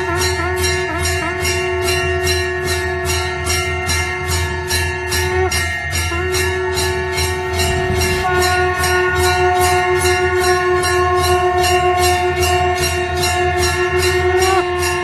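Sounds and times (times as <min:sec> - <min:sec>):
bells struck in steady rhythm: 0:00.0 - 0:15.0
long held tones: 0:05.2 - 0:14.8.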